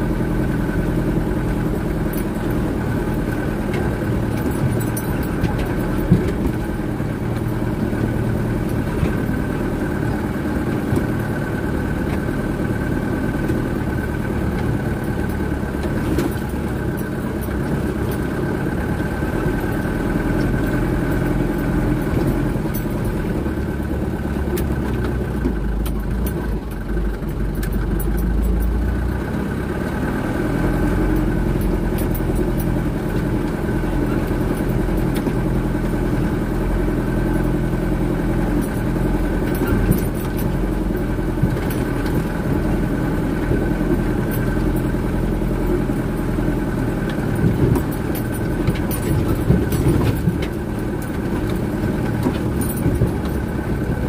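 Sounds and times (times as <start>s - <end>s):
diesel truck engine rumbling: 0.0s - 54.0s
rattles and knocks: 31.0s - 54.0s.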